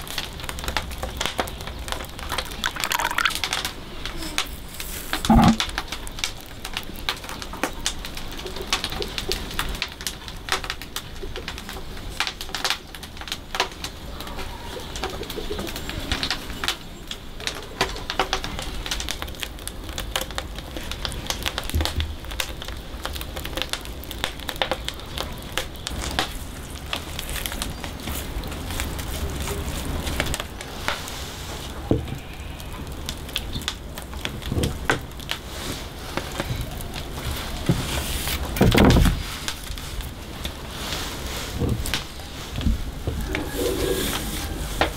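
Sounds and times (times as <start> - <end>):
brush scraping in wooden bowl: 4.5 - 5.6, 43.3 - 44.7
dove cooing: 43.2 - 44.6.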